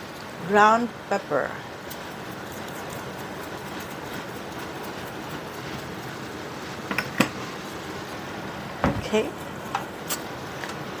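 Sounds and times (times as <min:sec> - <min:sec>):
meat sizzling in a pan: 0:04.2 - 0:08.8.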